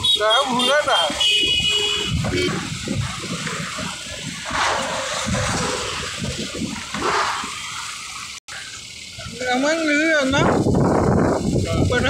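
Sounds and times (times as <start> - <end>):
motorcycle engine and road rumble: 0.0 - 12.0
wind buffeting microphone: 1.1 - 7.8, 9.0 - 12.0.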